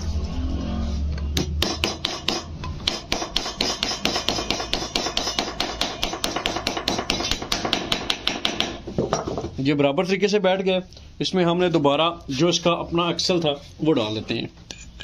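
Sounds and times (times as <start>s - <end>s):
small hammer tapping metal: 1.4s - 9.1s.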